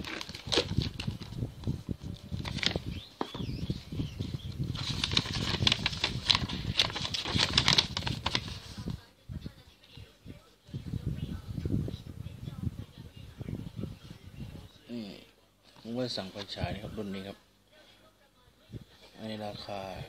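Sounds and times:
plastic wrapping crinkling: 0:00.0 - 0:01.4, 0:02.2 - 0:03.5, 0:04.7 - 0:09.0.

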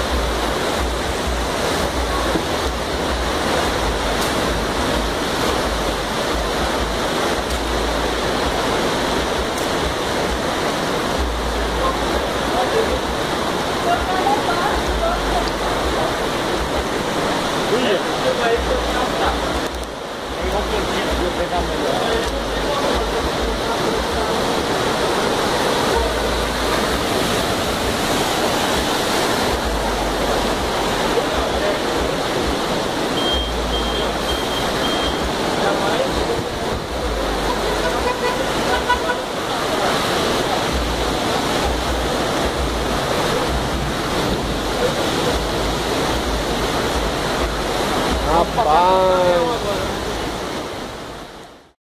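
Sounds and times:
cars driving through water: 0:00.0 - 0:51.8
floodwater rushing: 0:00.0 - 0:51.8
heavy rain: 0:00.0 - 0:51.8.

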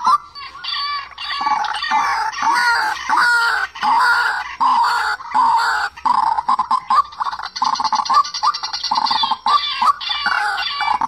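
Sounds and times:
bird calling rapid notes: 0:00.0 - 0:11.0.

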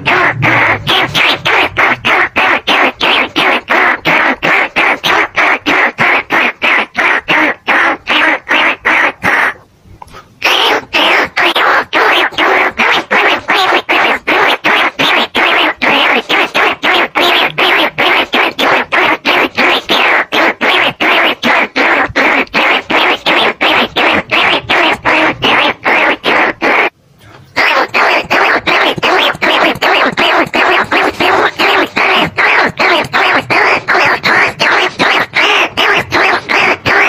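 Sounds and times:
rat squeaks: 0:10.5 - 0:26.9, 0:27.6 - 0:37.0.

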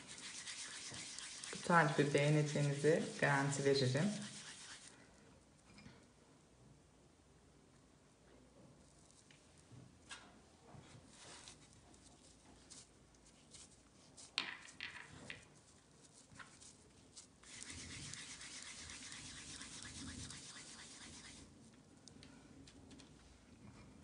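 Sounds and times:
hands rubbing dough: 0:00.0 - 0:05.0, 0:15.4 - 0:21.6.

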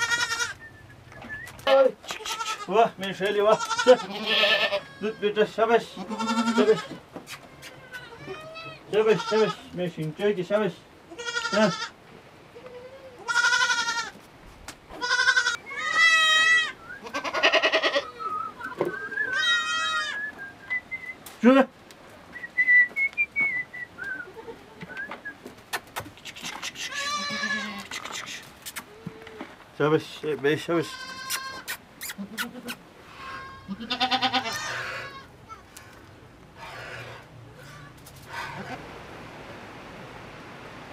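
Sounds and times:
goats bleating: 0:00.0 - 0:00.6, 0:01.6 - 0:09.8, 0:11.1 - 0:14.2, 0:14.9 - 0:20.3, 0:24.2 - 0:25.0, 0:26.5 - 0:29.5, 0:30.6 - 0:35.9.

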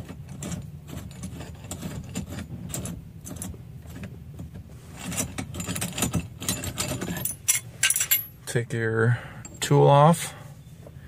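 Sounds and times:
metal clinks and rattles: 0:00.0 - 0:04.1, 0:05.0 - 0:08.5.

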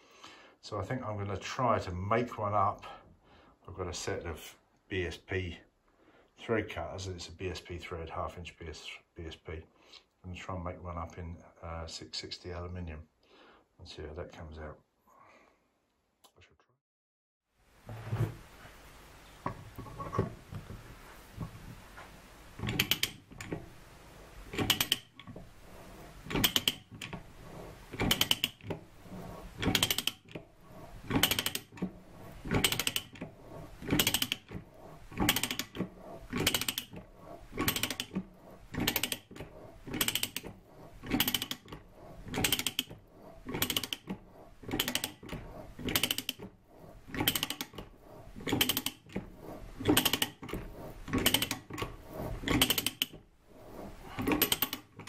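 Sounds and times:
ratchet pawl clicking: 0:24.5 - 0:42.9, 0:43.5 - 0:44.1, 0:44.7 - 0:46.4, 0:47.1 - 0:47.8, 0:48.4 - 0:53.1, 0:54.2 - 0:54.9.

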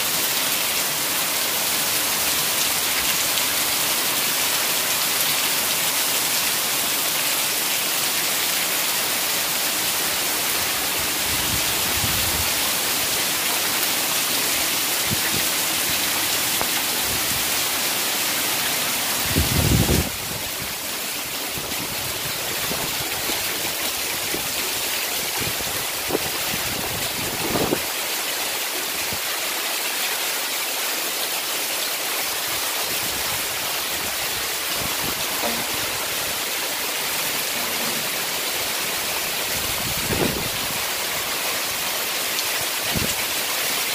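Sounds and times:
heavy rain pouring: 0:00.0 - 0:43.9.

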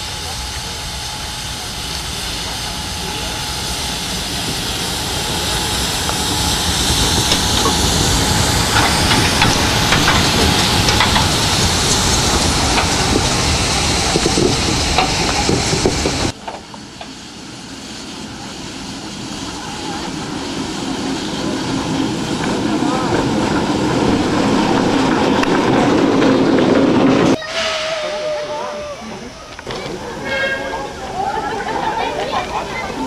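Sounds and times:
steam hissing: 0:00.0 - 0:33.0
wheels clicking and clanking: 0:05.3 - 0:17.1.

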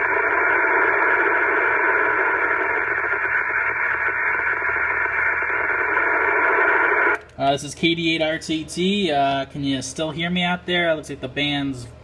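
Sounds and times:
radio static hiss: 0:00.0 - 0:07.2.

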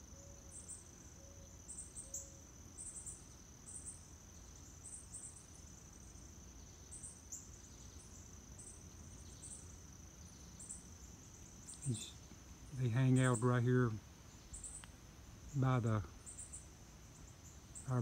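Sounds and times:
insect chirps: 0:00.0 - 0:18.0
insect chorus drone: 0:00.0 - 0:18.0.

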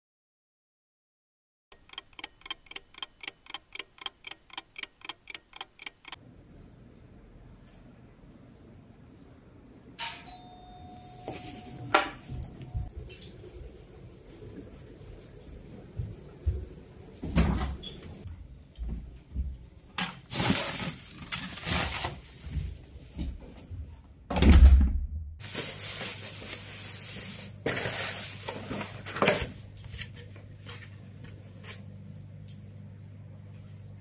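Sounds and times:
low steady hum: 0:02.2 - 0:20.0.

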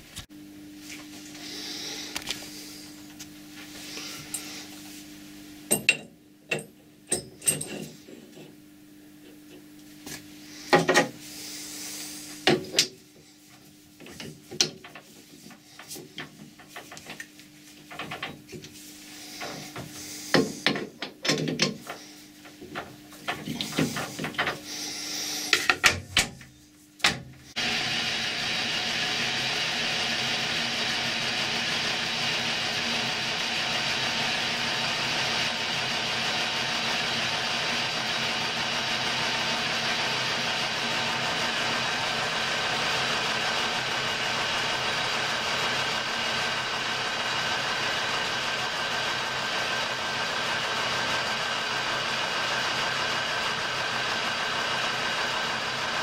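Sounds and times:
faint steady hum: 0:00.1 - 0:27.6
metal clinks and knocks: 0:05.7 - 0:08.6
metal lathe running: 0:27.6 - 0:56.0.

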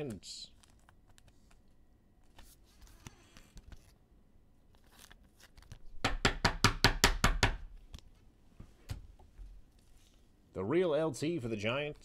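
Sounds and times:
faint handling sounds: 0:00.0 - 0:05.9, 0:07.8 - 0:10.5.

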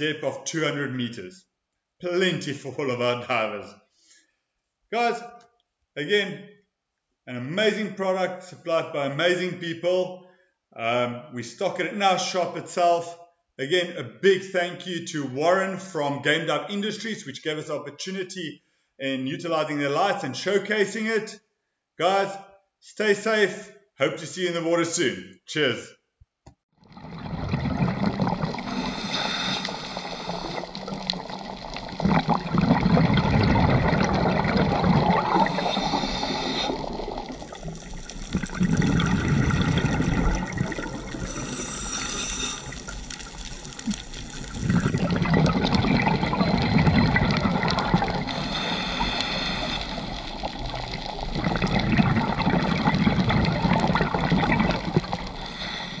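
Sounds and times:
exhaled bubbles rushing: 0:26.8 - 0:56.0
diver inhaling through regulator: 0:27.1 - 0:56.0.

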